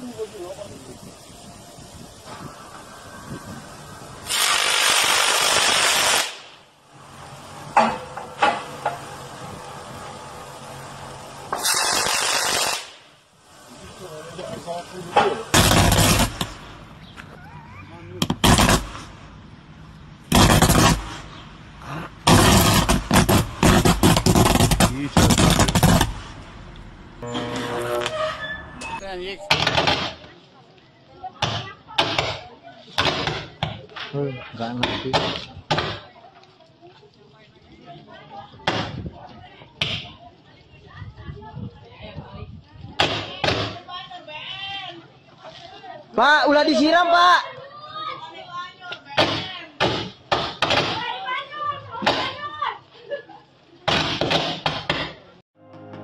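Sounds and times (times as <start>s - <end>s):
electric arc hissing: 0.0s - 16.9s, 18.2s - 19.5s, 20.2s - 30.3s
sharp cracks: 4.2s - 6.7s, 11.5s - 13.2s, 15.2s - 17.0s, 18.2s - 19.4s, 20.3s - 27.2s, 29.5s - 30.4s.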